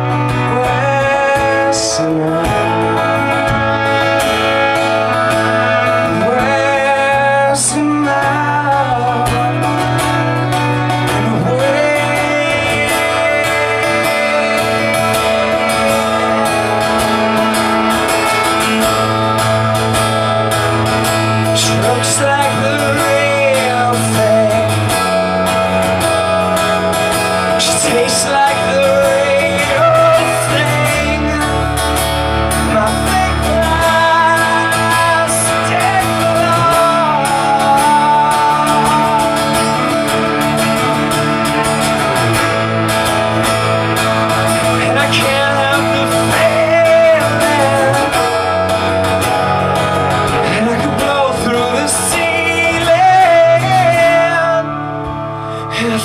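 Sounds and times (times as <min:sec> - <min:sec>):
strummed acoustic guitar: 0:00.0 - 0:56.0
bowed cello: 0:12.3 - 0:20.9.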